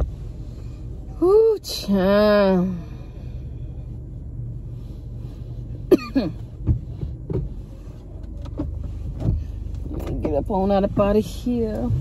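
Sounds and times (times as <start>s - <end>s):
car engine idling: 0.0s - 12.0s
clicks of handling in car: 6.3s - 11.9s.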